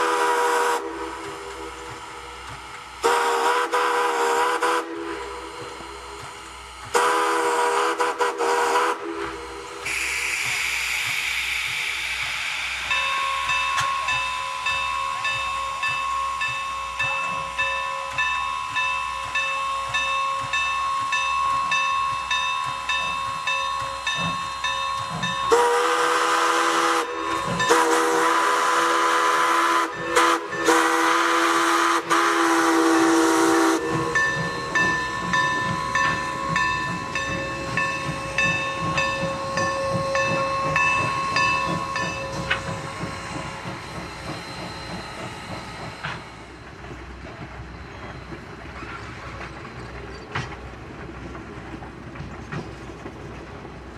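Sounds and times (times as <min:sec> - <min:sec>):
steam whistle blasts: 0:00.0 - 0:01.8, 0:03.0 - 0:05.6, 0:06.9 - 0:11.4, 0:25.4 - 0:36.3
passing train coaches: 0:00.0 - 0:53.9
steam locomotive exhaust beating: 0:00.0 - 0:53.9.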